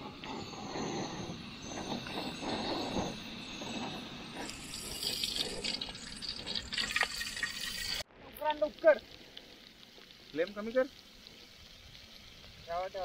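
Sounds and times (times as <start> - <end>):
water pouring into metal pot: 4.4 - 8.1.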